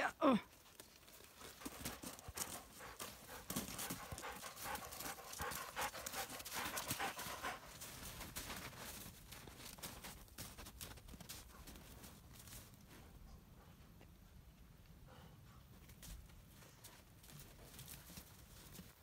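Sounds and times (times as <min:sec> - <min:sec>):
footsteps crunching in snow: 0:00.8 - 0:13.0
dog panting: 0:01.1 - 0:17.0.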